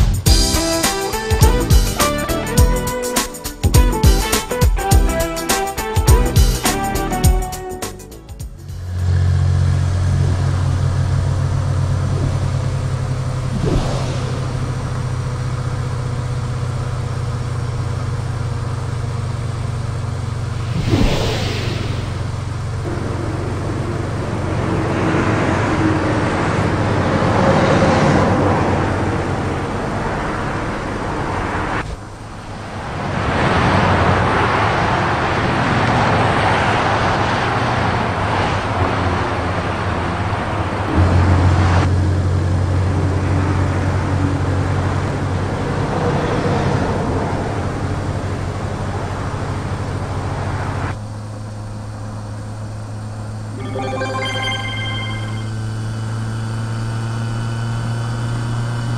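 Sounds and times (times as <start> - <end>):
cars passing on motorway: 8.5 - 52.3
steady low traffic hum: 8.5 - 53.6.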